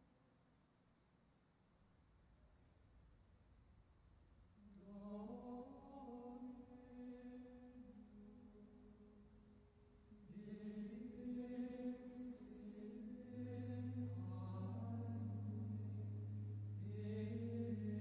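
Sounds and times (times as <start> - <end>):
person chanting: 10.1 - 18.0
low held drone note: 13.4 - 18.0.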